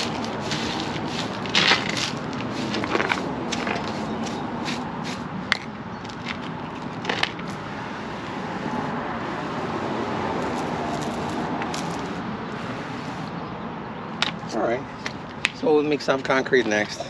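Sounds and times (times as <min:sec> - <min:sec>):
water spraying from pump sprayer: 0:00.0 - 0:05.3, 0:10.4 - 0:13.3
concrete bits clicking and scraping: 0:00.0 - 0:07.6.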